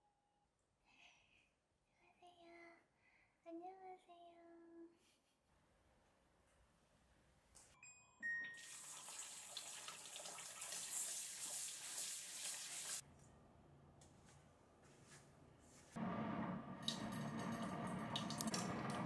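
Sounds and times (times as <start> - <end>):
water running from a tap: 8.6 - 13.0, 16.8 - 19.0.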